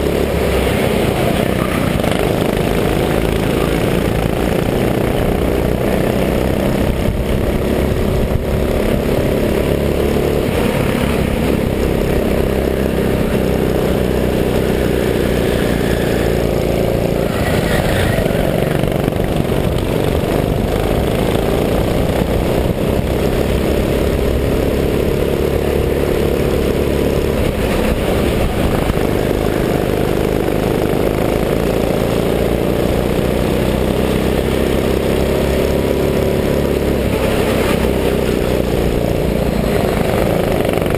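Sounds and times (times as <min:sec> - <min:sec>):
go-kart engine revving: 0:00.0 - 0:40.9
wind noise on microphone: 0:06.6 - 0:09.2, 0:27.3 - 0:29.4.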